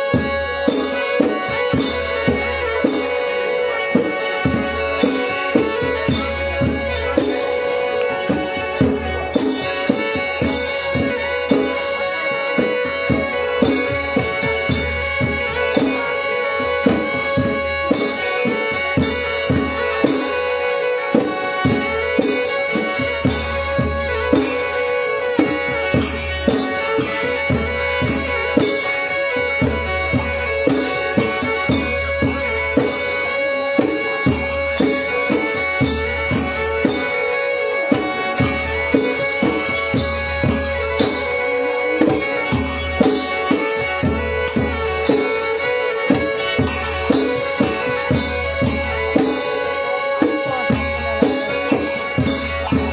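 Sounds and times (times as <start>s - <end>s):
hand drums beating steady rhythm: 0.0s - 52.9s.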